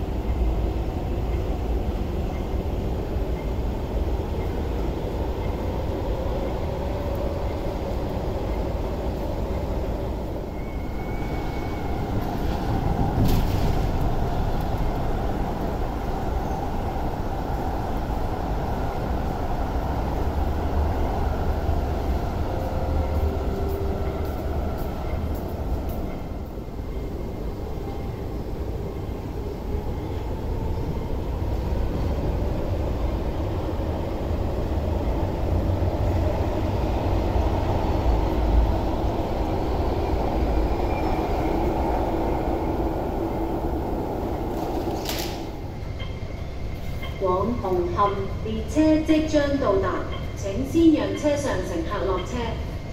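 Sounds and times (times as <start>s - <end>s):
metro train rumbling: 0.0s - 52.9s.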